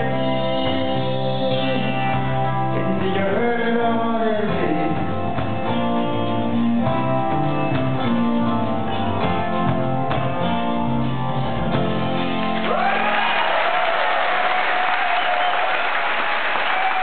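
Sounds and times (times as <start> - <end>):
live band playing country-folk: 0.0 - 12.9.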